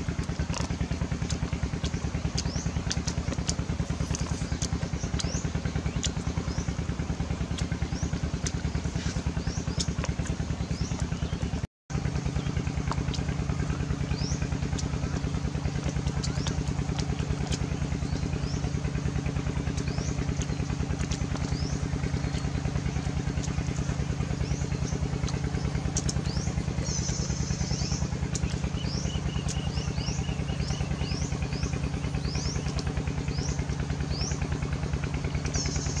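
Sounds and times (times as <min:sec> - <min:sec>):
birds chirping: 0:00.0 - 0:36.0
small engine running: 0:00.0 - 0:36.0
bird trill: 0:17.4 - 0:34.5.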